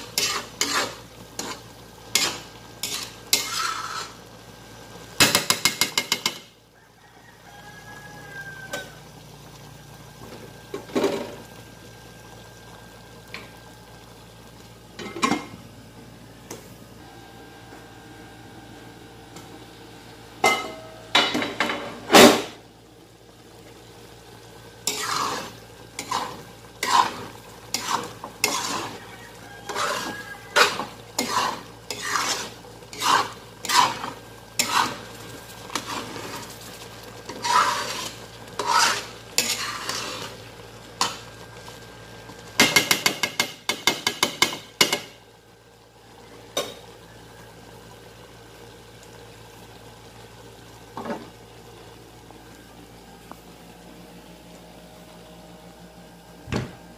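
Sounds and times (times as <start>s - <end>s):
metal ladle scraping a wok: 0.0s - 4.2s, 24.8s - 35.0s, 35.7s - 36.6s, 37.3s - 40.4s
wok lid clanking: 20.4s - 22.5s.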